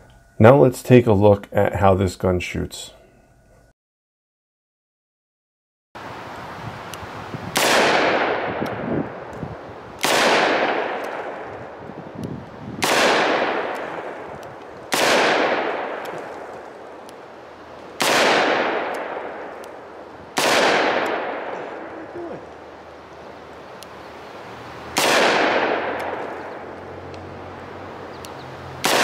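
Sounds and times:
revolver shots with echo: 0:07.5 - 0:08.9, 0:10.0 - 0:11.5, 0:12.8 - 0:14.3, 0:14.9 - 0:16.5, 0:18.0 - 0:19.7, 0:20.4 - 0:21.9, 0:25.0 - 0:26.7.

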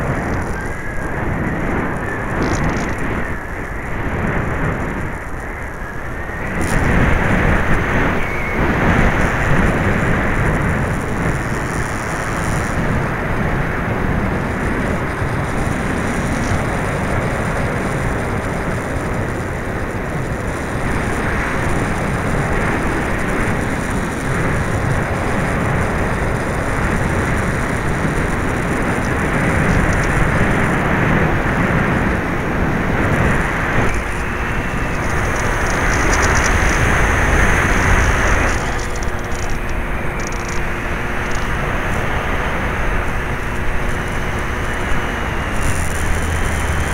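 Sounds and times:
wind rushing over microphone: 0:00.0 - 0:46.9.

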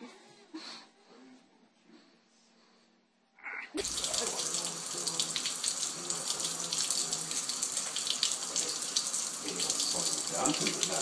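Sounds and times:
faucet running into sink: 0:03.8 - 0:11.0.

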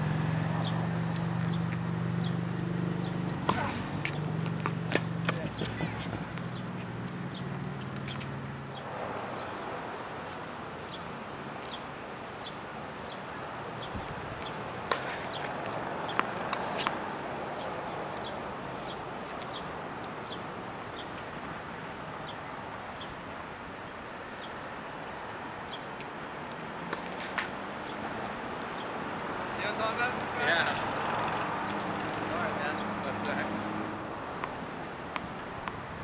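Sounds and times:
steady outdoor hiss: 0:00.0 - 0:36.0
small bird chirping: 0:01.4 - 0:03.3
tennis ball struck by rackets: 0:03.3 - 0:06.6, 0:14.8 - 0:17.0, 0:26.9 - 0:27.6.

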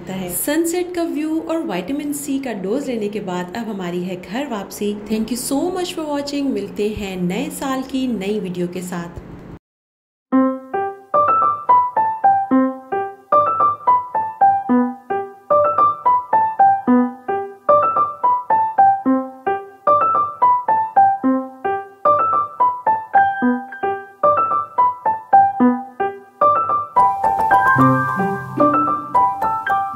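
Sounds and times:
piano notes falling in pitch: 0:10.3 - 0:29.9.

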